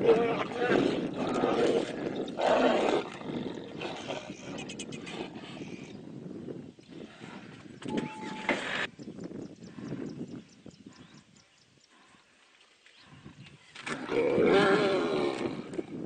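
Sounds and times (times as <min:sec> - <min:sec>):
tigers roaring: 0:14.0 - 0:15.7.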